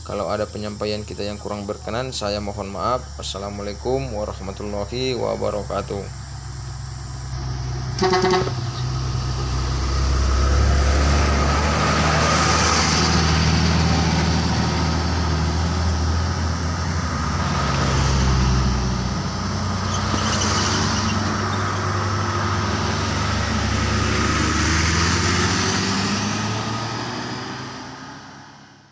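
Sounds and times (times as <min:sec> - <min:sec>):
cars passing: 0:04.2 - 0:28.9
bus passing: 0:06.1 - 0:28.9.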